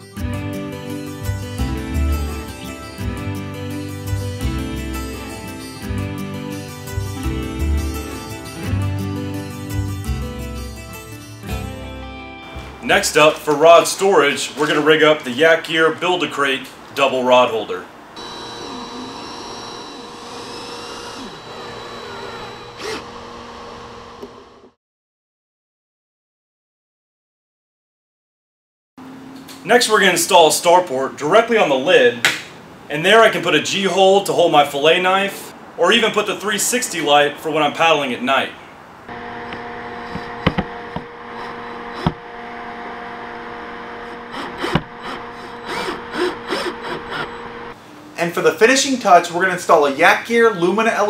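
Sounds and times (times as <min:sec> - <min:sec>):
cordless drill whining: 0:18.2 - 0:24.8, 0:39.1 - 0:47.8.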